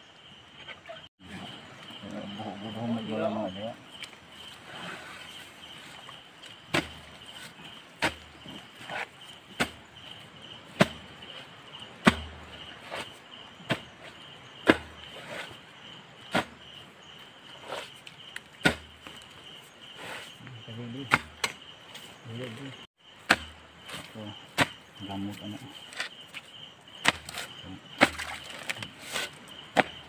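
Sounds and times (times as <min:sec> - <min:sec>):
insects chirping: 0:00.0 - 0:30.0
digging tool hitting wet mud: 0:06.7 - 0:07.0, 0:08.0 - 0:08.3, 0:09.6 - 0:09.8, 0:10.8 - 0:11.0, 0:12.0 - 0:12.4, 0:14.6 - 0:14.9, 0:16.3 - 0:16.5, 0:18.6 - 0:18.9, 0:21.1 - 0:21.6, 0:23.2 - 0:24.0, 0:24.6 - 0:24.8, 0:27.0 - 0:30.0.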